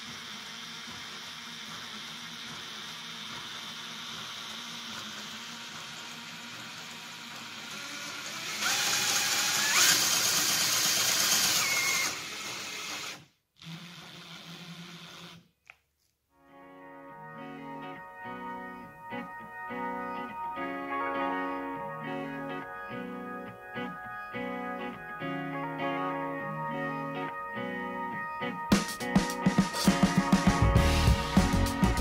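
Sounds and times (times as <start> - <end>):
cordless drill running: 0.0 - 15.5.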